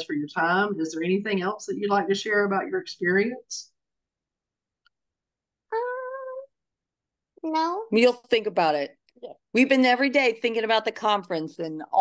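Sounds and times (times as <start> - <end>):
girl saying umm: 5.7 - 6.5.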